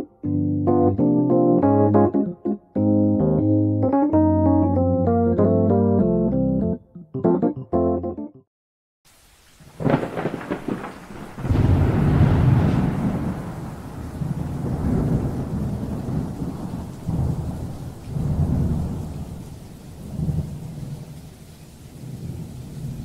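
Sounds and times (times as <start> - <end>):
rolling thunder: 9.7 - 21.3, 21.9 - 23.0.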